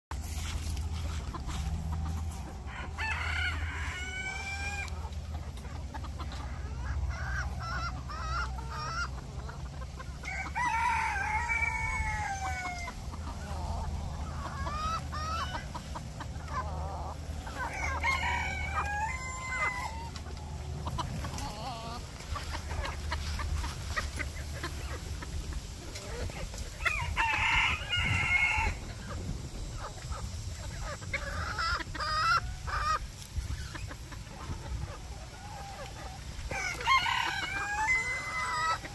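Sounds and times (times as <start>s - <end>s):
rooster clucking: 0.1s - 38.9s
rooster crowing: 2.7s - 4.9s, 10.2s - 13.0s, 17.6s - 20.2s, 26.8s - 28.8s, 36.5s - 38.9s.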